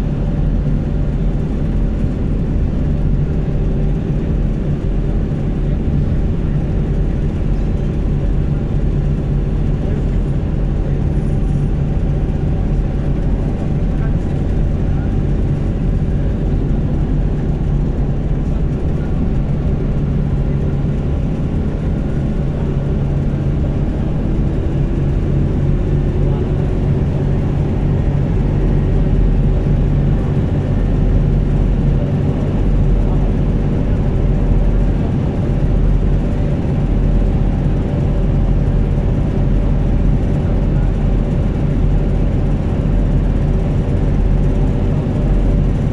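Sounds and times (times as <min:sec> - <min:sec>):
engine hum: 0:00.0 - 0:45.9.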